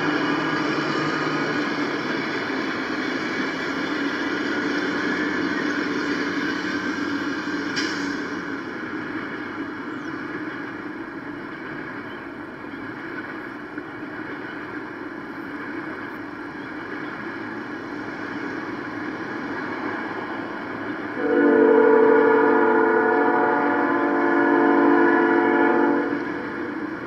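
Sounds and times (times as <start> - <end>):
train horn chord: 21.2 - 26.7.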